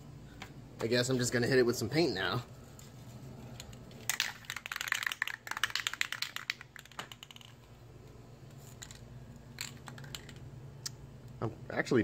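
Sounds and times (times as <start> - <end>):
spray can mixing ball rattling: 3.5 - 7.7.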